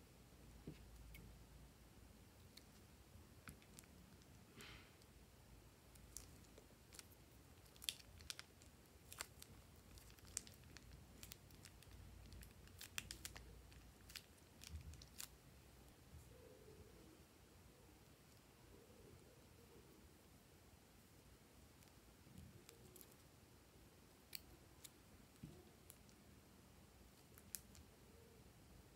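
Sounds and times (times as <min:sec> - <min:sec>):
plastic piping bag crinkling: 0:05.9 - 0:15.4.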